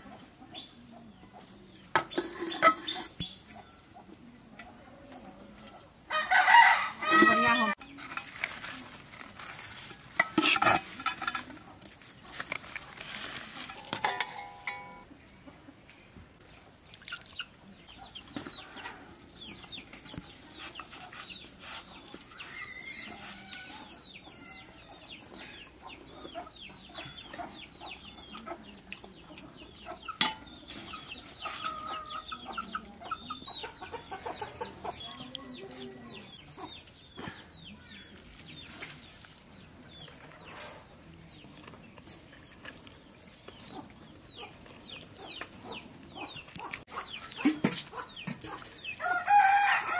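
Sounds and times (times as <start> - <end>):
chickens clucking: 0.0 - 9.0, 10.2 - 49.8
ladle clattering against metal pot: 1.9 - 3.1, 10.2 - 11.6, 13.7 - 15.0, 30.1 - 30.5.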